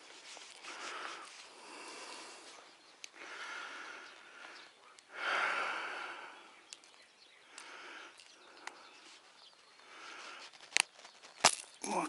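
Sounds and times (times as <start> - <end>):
faint outdoor ambience: 0.0 - 12.0
breathy hiss: 0.6 - 6.6
light clicks: 6.7 - 8.8.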